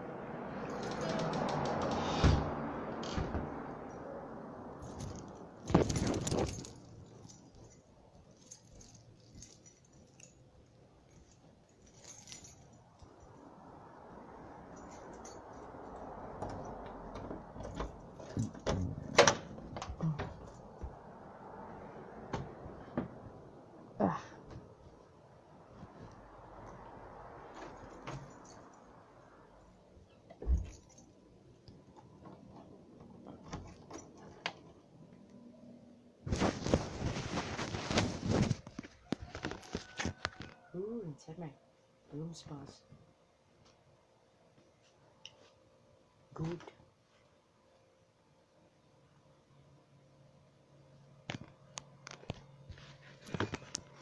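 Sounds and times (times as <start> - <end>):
rustling and clinking: 0.6 - 2.2, 4.8 - 13.4, 14.7 - 21.0, 25.7 - 29.0, 30.0 - 34.9, 51.3 - 54.0
faint small clicks and rustles: 4.8 - 13.4, 44.6 - 45.8, 51.1 - 54.0.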